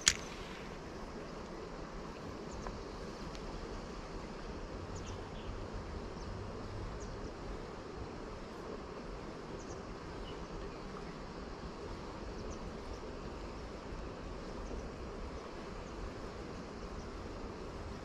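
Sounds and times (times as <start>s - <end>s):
flowing river water: 0.0s - 18.0s
faint high ticks: 2.5s - 3.5s.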